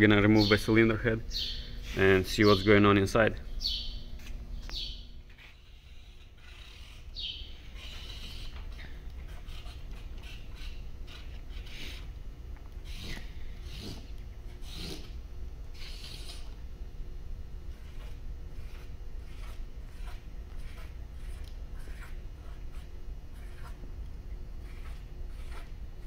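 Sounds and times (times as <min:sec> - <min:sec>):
marker pen scratching on cardboard: 0:05.3 - 0:12.2, 0:12.8 - 0:16.6, 0:17.7 - 0:23.9, 0:24.6 - 0:26.0.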